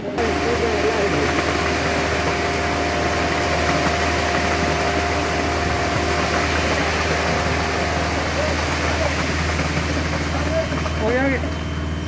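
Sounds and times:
steady whine: 0.0 - 12.0
truck engine humming: 0.0 - 12.0.

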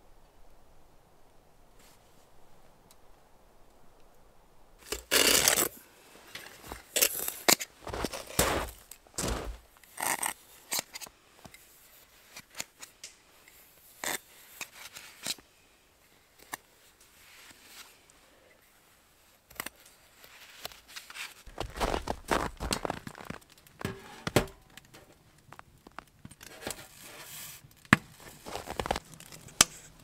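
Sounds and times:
pot scraping through snow: 4.8 - 10.9, 20.3 - 24.3, 26.5 - 29.9.

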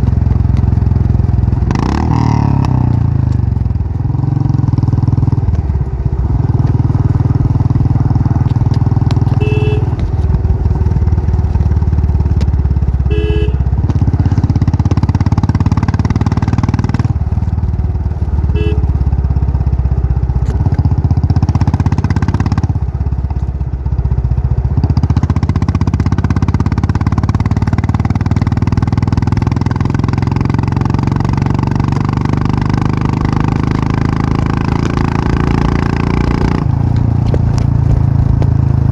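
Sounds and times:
motorcycle engine running: 0.0 - 38.9
horn beeps: 9.3 - 10.1, 13.0 - 13.7, 18.4 - 19.0.

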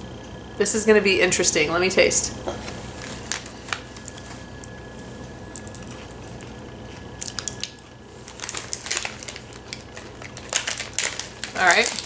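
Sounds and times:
crisp crunches of chewing: 2.6 - 12.0.

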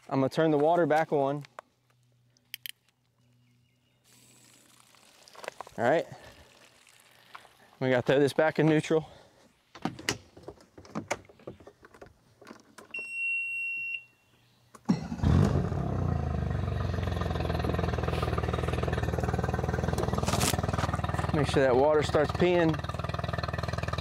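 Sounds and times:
outboard motor idling: 14.9 - 24.0.

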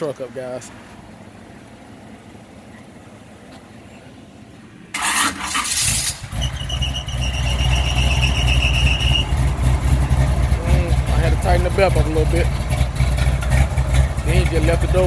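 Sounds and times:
engine idling loudly: 4.6 - 15.0
engine starter cranking: 4.9 - 11.7
belt squeal: 5.0 - 9.5.

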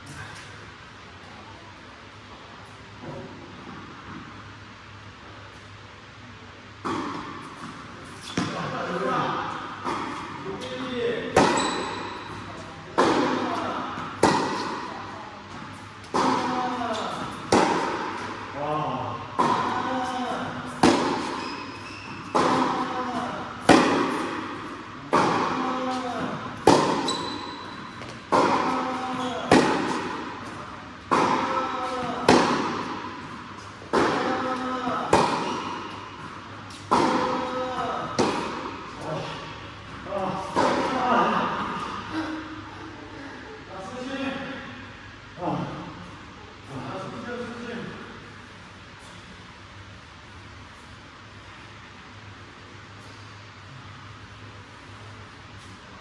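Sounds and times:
ball bouncing on hard court: 6.8 - 8.7, 9.8 - 14.9, 19.4 - 39.1
tennis ball striking racquet: 9.8 - 14.9, 15.5 - 18.5, 19.4 - 39.6, 40.3 - 42.0.

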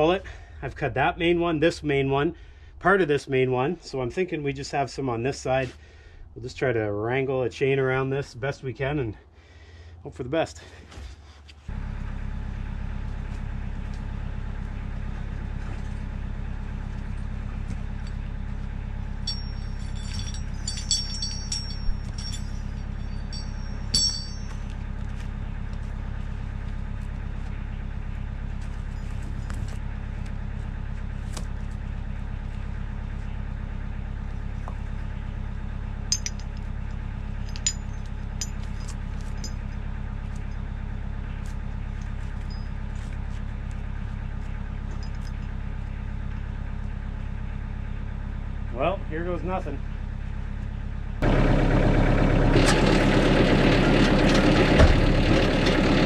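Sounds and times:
diesel tractor engine idling: 8.0 - 56.0
steel chain clinking and rattling: 17.0 - 25.6, 36.0 - 40.6, 41.7 - 45.6.

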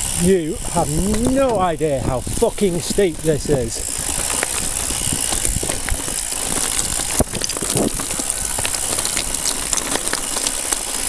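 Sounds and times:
bike rattling: 0.0 - 11.0
tyres crunching over stones: 0.0 - 11.0.

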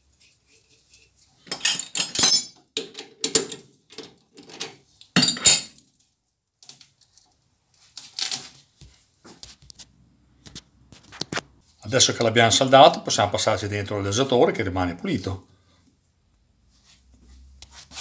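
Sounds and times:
metal clinks and rattles: 1.5 - 5.8.

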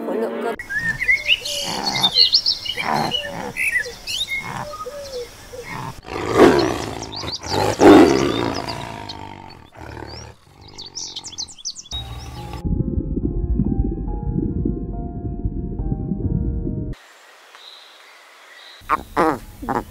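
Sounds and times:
birds chirping: 0.6 - 12.6, 17.6 - 19.9
big cat roaring: 1.5 - 4.9, 5.6 - 11.6.

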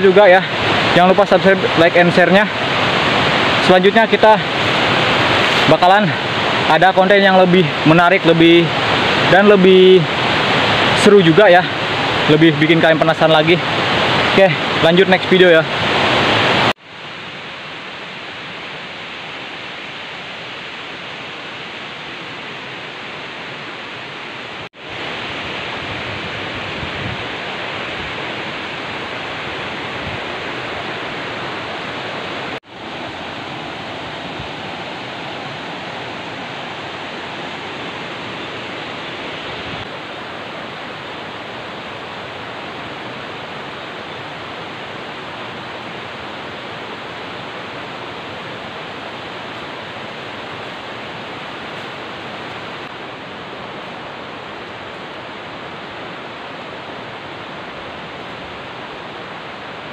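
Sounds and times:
steady rushing outdoor noise: 0.0 - 59.9.

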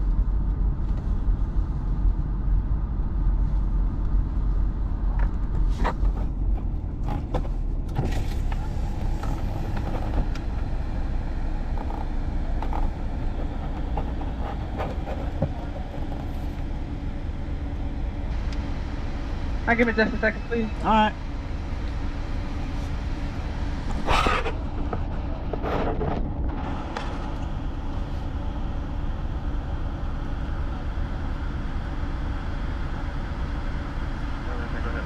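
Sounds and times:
car engine and tyre rumble: 0.0 - 35.0.

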